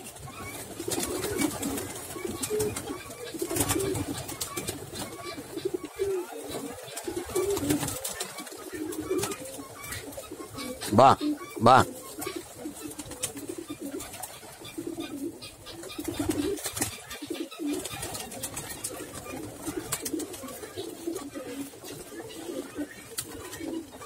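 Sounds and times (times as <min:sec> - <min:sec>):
pigeons cooing: 0:00.0 - 0:24.0.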